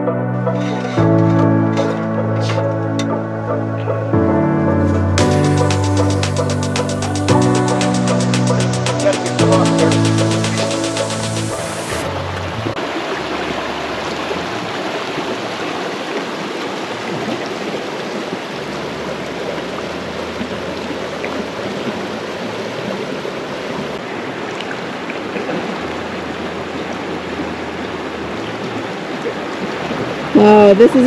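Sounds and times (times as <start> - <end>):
creek rushing over rocks: 8.5 - 31.0.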